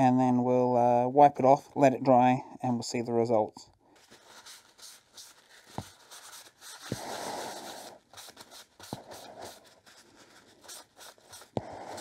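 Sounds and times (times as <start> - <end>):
rag rubbing on wood: 4.4 - 12.0.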